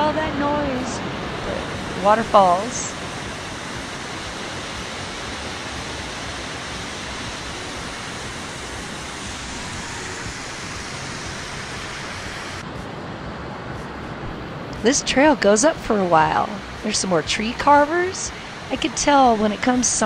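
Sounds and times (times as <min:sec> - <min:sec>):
water rushing over rocks: 0:00.0 - 0:12.6.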